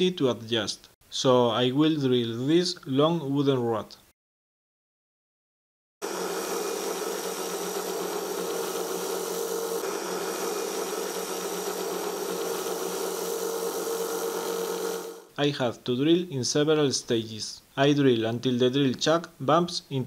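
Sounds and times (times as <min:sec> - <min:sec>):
drill press motor boring wood: 0:06.0 - 0:15.3.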